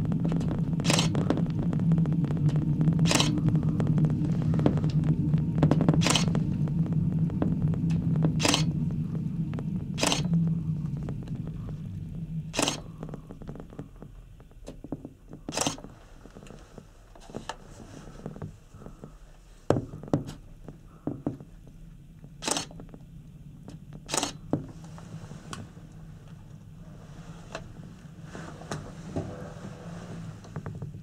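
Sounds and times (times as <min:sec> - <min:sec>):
sharp knocks and clicks: 0:00.0 - 0:16.6, 0:19.7 - 0:24.8
low hum: 0:00.0 - 0:31.0.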